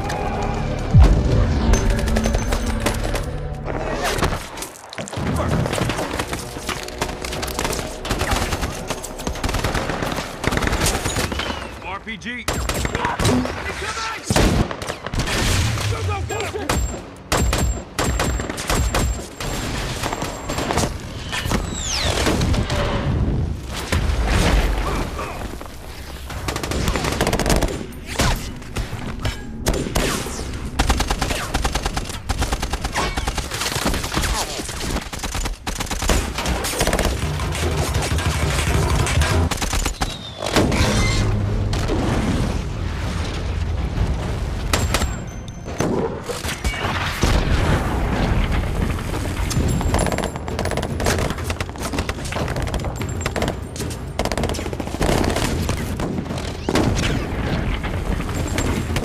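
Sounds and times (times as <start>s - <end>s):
explosions: 0.9s - 3.0s, 40.5s - 50.0s.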